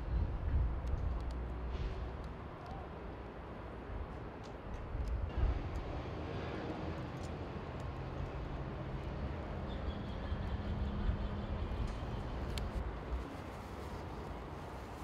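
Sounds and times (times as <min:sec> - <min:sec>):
gusty wind rumble: 0:00.0 - 0:02.5.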